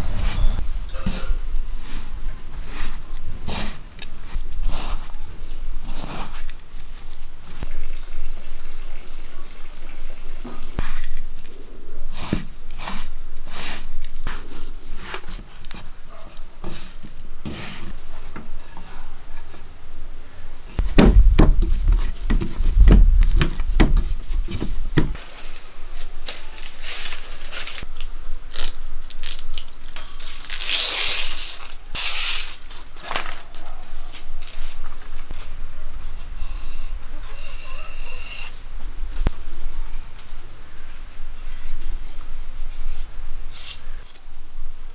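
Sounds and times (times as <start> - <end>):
leaf crackling and tearing: 25.2 - 35.6.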